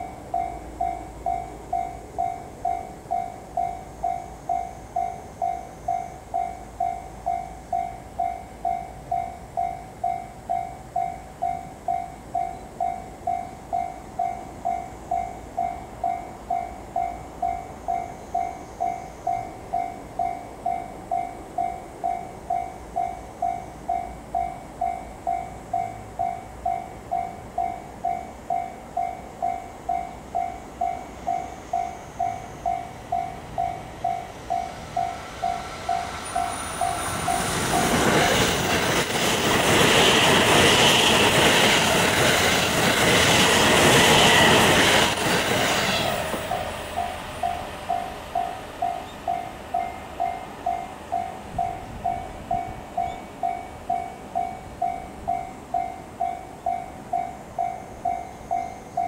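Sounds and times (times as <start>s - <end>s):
electric train passing: 0.0s - 59.0s
level-crossing warning bell: 0.0s - 59.0s.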